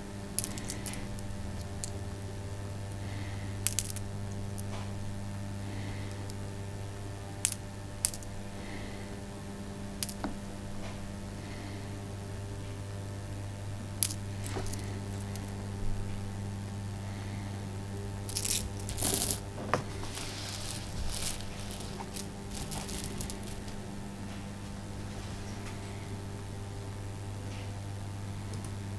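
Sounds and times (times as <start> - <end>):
steady low hum: 0.0 - 28.9
pearls clicking together: 0.3 - 5.2, 7.3 - 8.4, 9.9 - 10.4, 14.0 - 15.6, 18.3 - 24.0.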